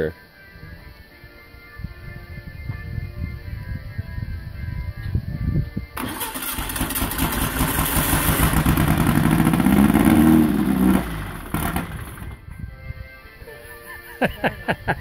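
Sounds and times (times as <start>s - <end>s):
starter cranking: 6.0s - 12.4s
engine running loud: 6.0s - 12.6s.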